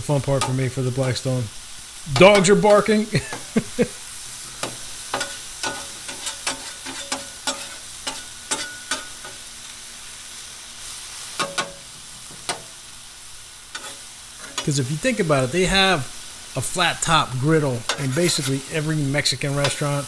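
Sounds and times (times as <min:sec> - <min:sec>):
steak sizzling on a griddle: 0:00.0 - 0:20.0
metal blades clacking on griddle: 0:00.4 - 0:00.8, 0:02.1 - 0:03.4, 0:04.6 - 0:09.5, 0:11.4 - 0:12.8, 0:13.7 - 0:14.8, 0:17.8 - 0:18.7, 0:19.5 - 0:20.0.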